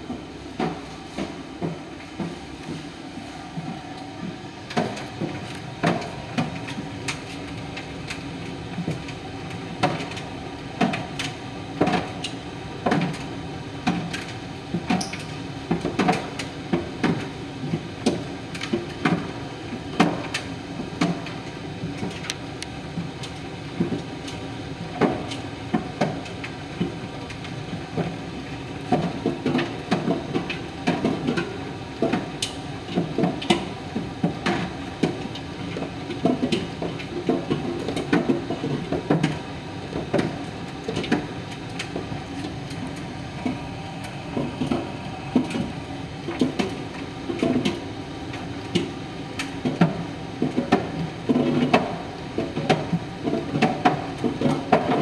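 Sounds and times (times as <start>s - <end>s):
tumble dryer motor humming: 38.9s - 49.4s.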